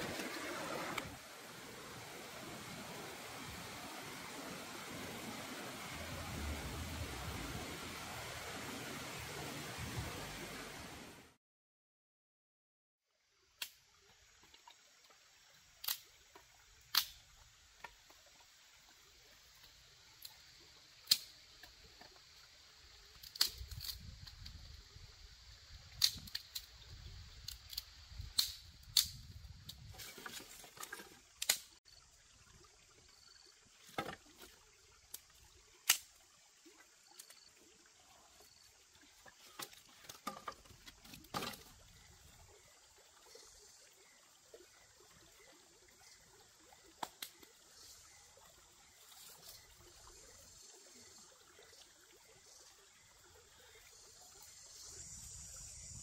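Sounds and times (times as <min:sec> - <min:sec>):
insects chirring: 0:13.9 - 0:56.0.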